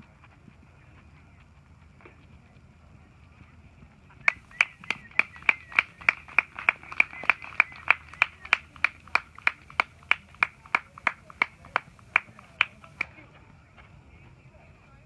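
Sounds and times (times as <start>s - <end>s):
person clapping: 4.3s - 13.1s.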